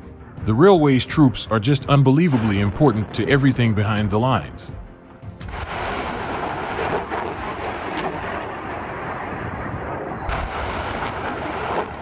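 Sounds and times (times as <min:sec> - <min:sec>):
rocket launch roar: 0:05.5 - 0:12.0.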